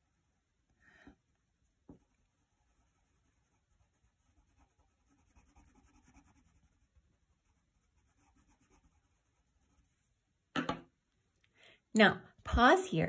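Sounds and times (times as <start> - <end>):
colored pencil scratching on paper: 1.9 - 10.3.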